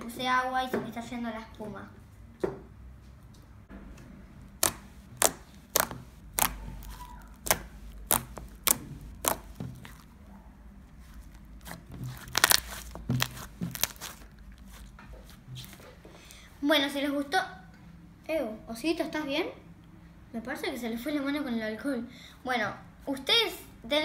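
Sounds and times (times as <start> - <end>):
slime popping and clicking: 4.5 - 10.1, 11.6 - 14.3.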